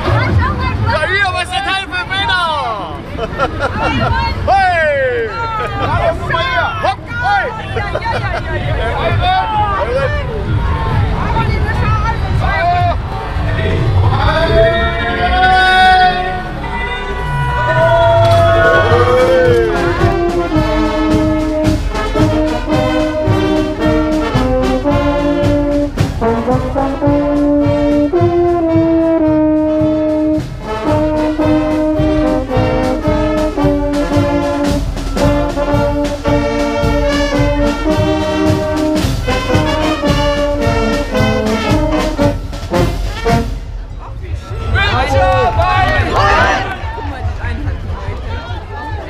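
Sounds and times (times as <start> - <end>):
brass band playing: 13.1 - 44.0.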